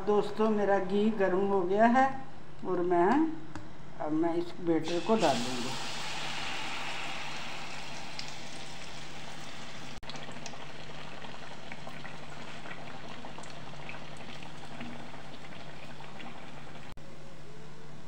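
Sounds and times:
batter sizzling in hot oil: 0:04.9 - 0:17.0.

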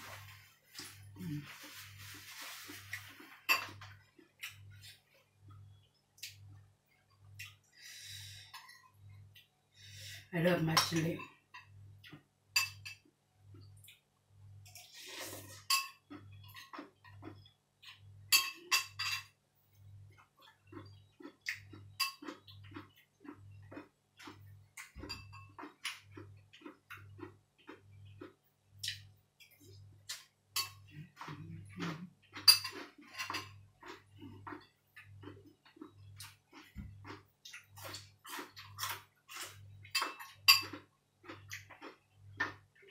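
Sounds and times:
metal spoon clinking on ceramic bowl: 0:18.3 - 0:19.3
faint low pulsing hum: 0:30.8 - 0:32.3.

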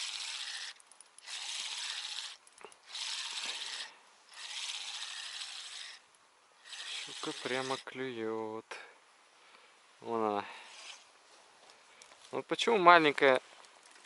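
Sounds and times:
fishing reel gears whirring: 0:00.0 - 0:06.0, 0:06.6 - 0:07.9.

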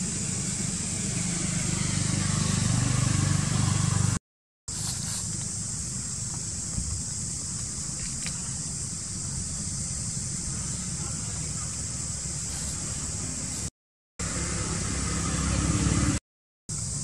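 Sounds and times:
high-pitched hiss: 0:04.7 - 0:14.8, 0:16.7 - 0:17.0.

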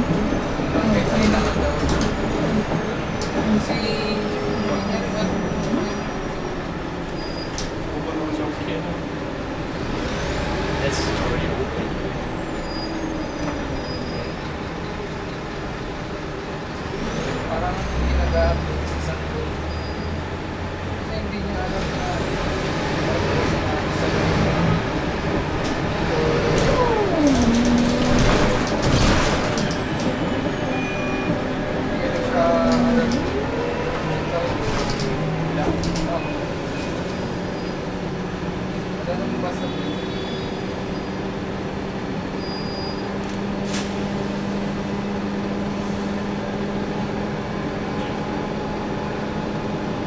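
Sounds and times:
bus engine and road rumble: 0:00.0 - 0:50.0
engine whine: 0:21.8 - 0:38.9.

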